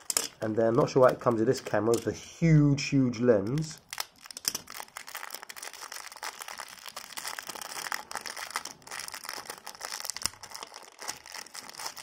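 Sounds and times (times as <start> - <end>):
plastic bag crinkling: 3.6 - 12.0.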